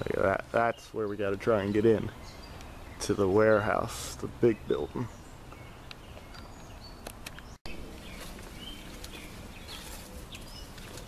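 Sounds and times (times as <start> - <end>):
bird chirps: 0.0 - 3.9, 4.5 - 11.0
footsteps through brush: 7.4 - 11.0.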